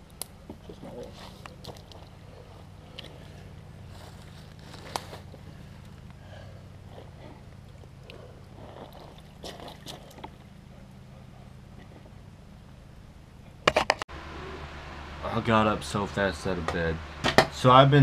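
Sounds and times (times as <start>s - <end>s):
footsteps through wet leaves: 3.8s - 5.4s
twigs snapping: 4.2s - 6.2s.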